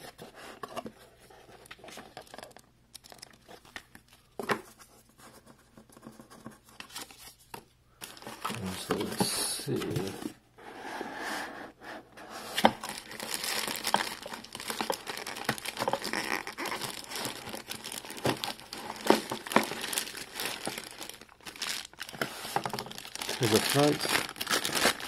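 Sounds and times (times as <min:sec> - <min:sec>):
plastic bags crinkling: 0:12.6 - 0:25.0.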